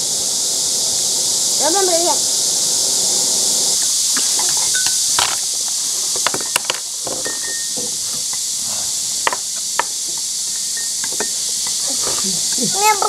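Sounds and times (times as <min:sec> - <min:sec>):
steady high hiss: 0:00.0 - 0:13.0.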